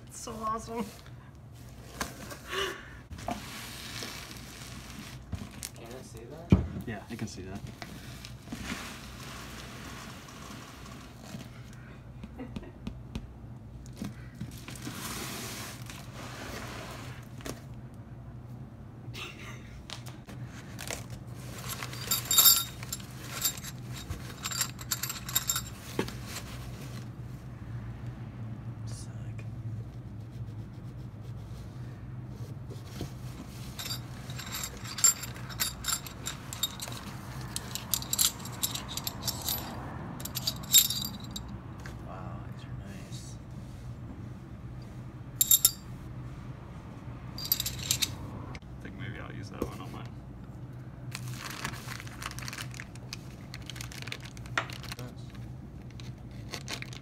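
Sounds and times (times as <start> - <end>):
metal plates clinking and scraping: 21.7 - 25.7, 33.8 - 41.5
shirt rustling: 33.4 - 41.4
plastic wrap rustling: 51.2 - 55.1.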